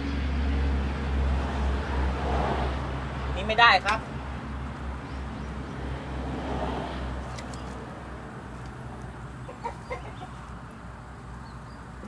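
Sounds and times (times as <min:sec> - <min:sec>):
chicken clucking: 0:09.4 - 0:10.5.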